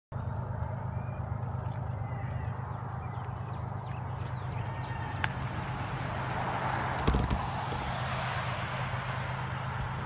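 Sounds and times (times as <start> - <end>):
thin high pulsing tone: 0.2 - 6.4
faint bird chirps: 0.4 - 5.3.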